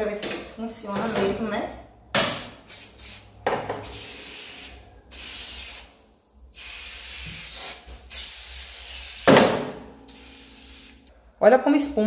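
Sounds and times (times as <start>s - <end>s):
aerosol can spraying: 2.2s - 9.4s, 10.1s - 11.1s.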